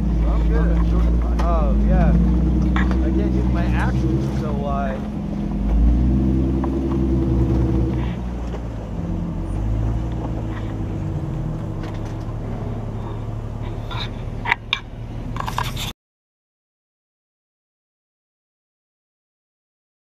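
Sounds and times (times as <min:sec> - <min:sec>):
engine running at crawling speed: 0:00.0 - 0:15.9.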